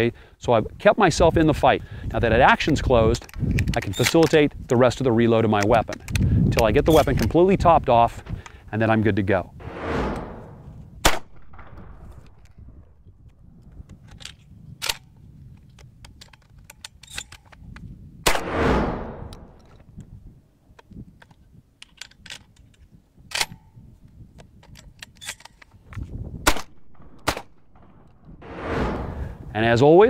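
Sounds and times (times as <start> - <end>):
gun handling clicks and knocks: 3.0 - 4.8, 5.4 - 7.5, 13.2 - 18.0, 19.6 - 28.3
shotgun shots with echo: 18.3 - 19.5.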